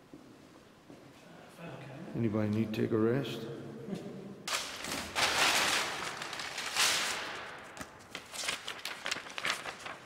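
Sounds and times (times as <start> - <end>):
papers rustling in file drawer: 4.5 - 10.0.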